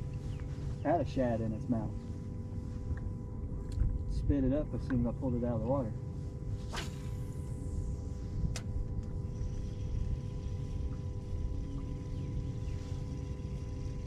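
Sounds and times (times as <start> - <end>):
electric motor humming: 5.3 - 14.0.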